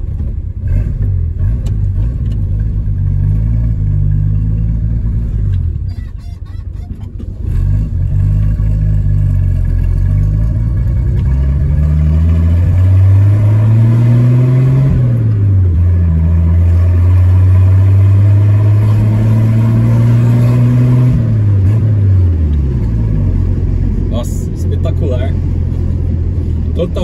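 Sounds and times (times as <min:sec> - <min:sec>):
engine accelerating through gears: 0:07.1 - 0:27.0.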